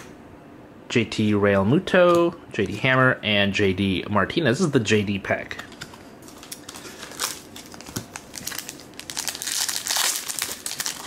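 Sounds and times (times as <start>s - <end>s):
foil wrapper tearing and crinkling: 6.3s - 11.0s.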